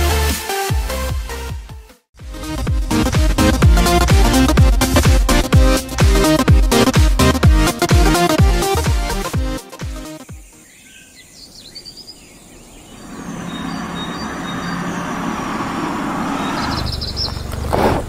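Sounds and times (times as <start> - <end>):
electronic dance music: 2.2 - 10.2
birds chirping: 10.0 - 17.8
rushing outdoor ambience: 12.0 - 18.0.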